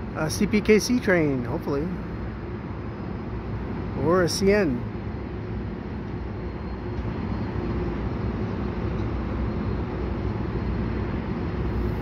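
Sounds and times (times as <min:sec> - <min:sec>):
diesel locomotive rumbling: 0:00.0 - 0:12.0.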